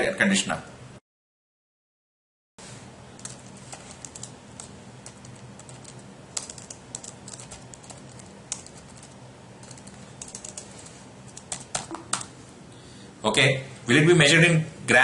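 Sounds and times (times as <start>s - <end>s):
computer keyboard typing: 3.2s - 12.3s.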